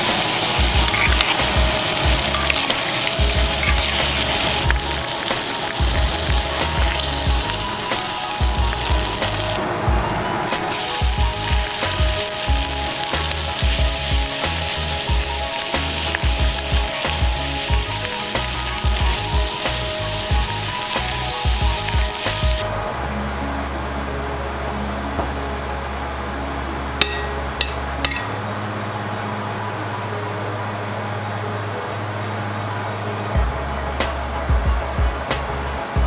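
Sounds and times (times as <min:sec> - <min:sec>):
food sizzling in skillet: 0:00.0 - 0:09.6, 0:10.5 - 0:22.6
background music: 0:00.0 - 0:36.0.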